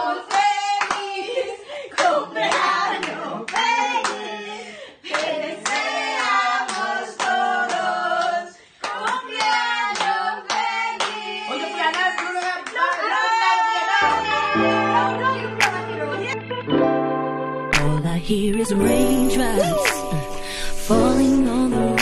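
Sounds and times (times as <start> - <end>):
group of people singing: 0.0 - 16.4, 18.1 - 22.0
people clapping in time: 0.3 - 1.1, 5.1 - 11.2, 15.6 - 15.9
background music: 14.0 - 22.0.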